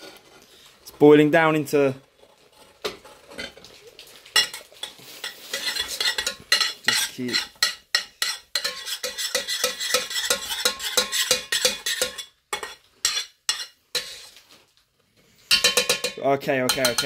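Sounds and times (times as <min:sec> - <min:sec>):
metal spoon scraping saucepan: 0:04.4 - 0:14.4, 0:15.5 - 0:17.0
spoon knocking on pan: 0:15.5 - 0:17.0.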